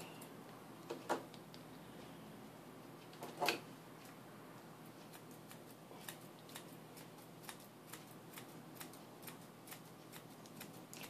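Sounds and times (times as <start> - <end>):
grooming shears snipping: 5.0 - 11.0.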